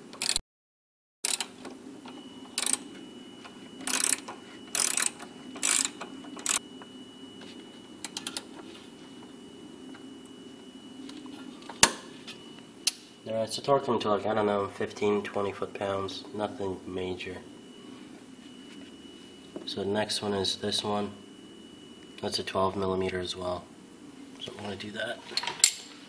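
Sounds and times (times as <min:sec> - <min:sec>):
ratchet wrench clicking: 0:00.1 - 0:00.4, 0:01.3 - 0:01.5, 0:04.8 - 0:06.6.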